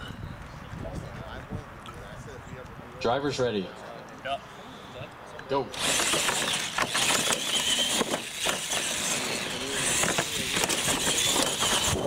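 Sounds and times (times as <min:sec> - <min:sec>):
electric motors whining: 0:05.7 - 0:12.0
toy trucks knocking on landing: 0:05.8 - 0:09.2, 0:09.8 - 0:12.0.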